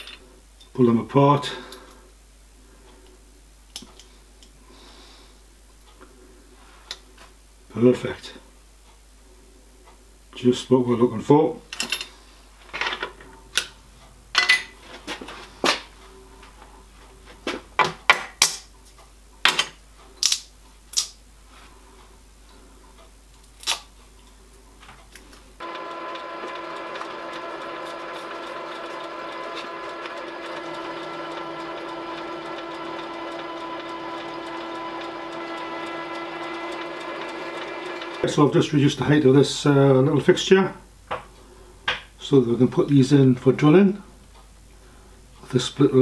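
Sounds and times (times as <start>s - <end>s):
milling machine spindle whine: 25.6s - 38.6s.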